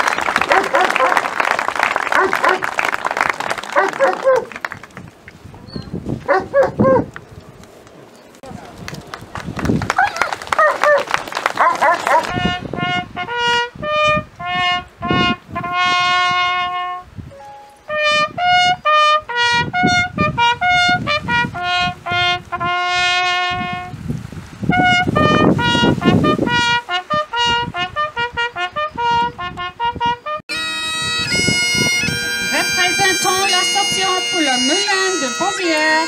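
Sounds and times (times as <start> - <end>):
bugle call on brass horn: 11.6 - 17.1, 17.9 - 24.0, 24.7 - 36.0.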